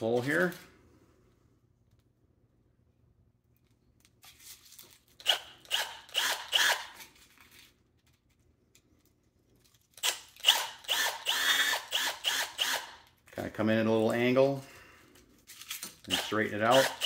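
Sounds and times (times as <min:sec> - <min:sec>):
cordless drill boring into plastic: 0:05.2 - 0:06.9, 0:10.4 - 0:13.0, 0:16.1 - 0:17.0.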